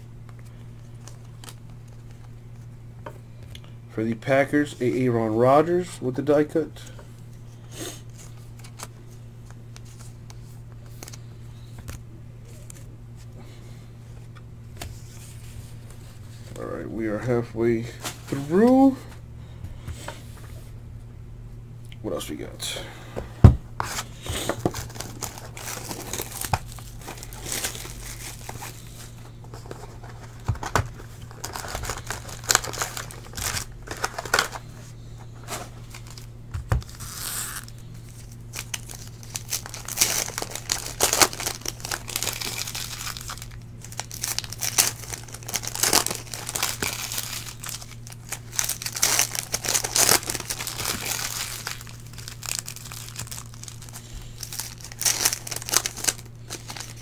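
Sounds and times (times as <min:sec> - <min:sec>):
steady low hum: 0:00.0 - 0:57.0
card packs being torn open: 0:00.3 - 0:02.4, 0:23.8 - 0:34.7, 0:35.4 - 0:57.0
wrappers crinkling: 0:23.8 - 0:57.0.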